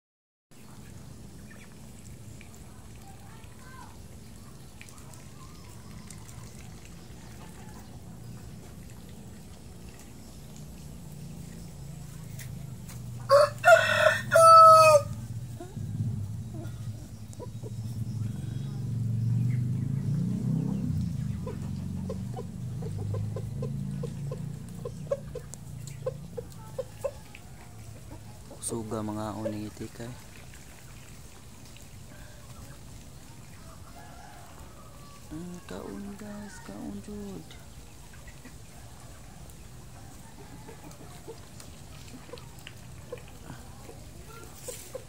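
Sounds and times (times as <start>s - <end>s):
ducks pecking and dabbling: 0.5s - 45.0s
steady low hum: 15.1s - 26.6s
chicken clucking: 20.7s - 30.1s, 40.1s - 45.0s.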